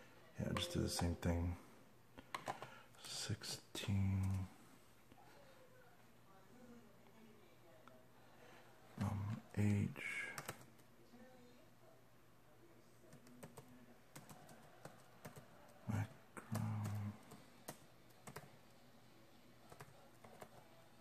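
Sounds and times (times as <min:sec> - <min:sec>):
keyboard typing: 0:00.4 - 0:01.4, 0:10.4 - 0:10.8, 0:13.1 - 0:18.6, 0:19.7 - 0:20.6
low voice: 0:03.0 - 0:04.5, 0:09.0 - 0:10.5, 0:15.8 - 0:17.3.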